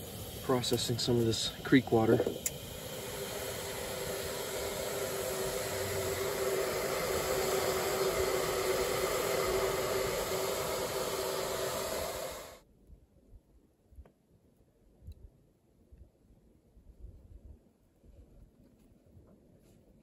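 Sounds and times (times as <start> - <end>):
stove burner hissing: 0.0 - 12.6
low hum: 0.0 - 14.0.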